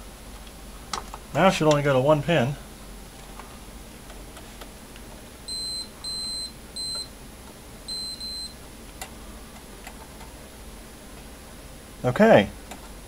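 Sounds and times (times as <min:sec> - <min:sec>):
multimeter continuity beeps: 0:05.5 - 0:07.1, 0:07.9 - 0:08.6.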